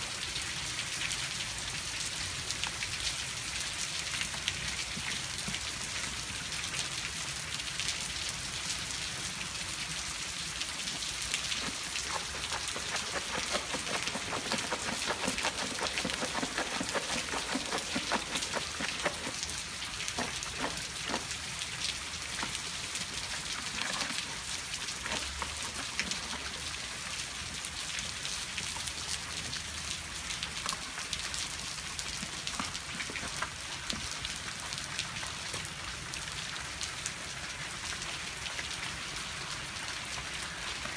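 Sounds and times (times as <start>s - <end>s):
steady rain falling: 0.0s - 40.9s.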